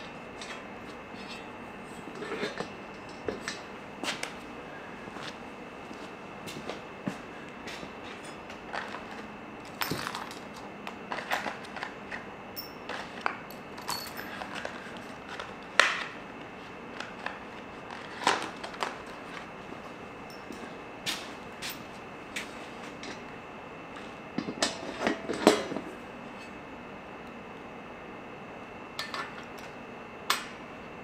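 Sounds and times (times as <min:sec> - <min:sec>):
metal hardware clicking and clinking: 0:13.8 - 0:14.5.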